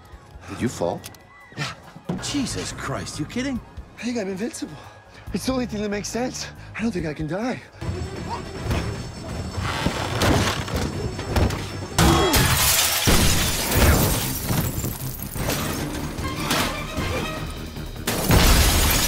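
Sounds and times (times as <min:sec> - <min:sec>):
glass shattering: 0:12.0 - 0:16.8, 0:18.1 - 0:19.0
film score music: 0:14.0 - 0:18.4.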